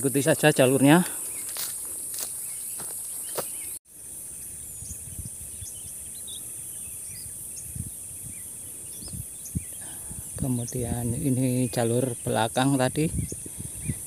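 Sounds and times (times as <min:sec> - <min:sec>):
high-pitched insect chorus: 0:00.0 - 0:14.0
soft footfalls: 0:01.5 - 0:03.6
faint bird chirps: 0:02.3 - 0:12.5.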